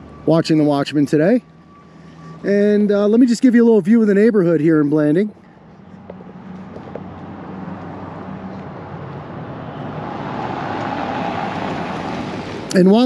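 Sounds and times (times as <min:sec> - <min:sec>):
car driving by: 0:05.8 - 0:13.0.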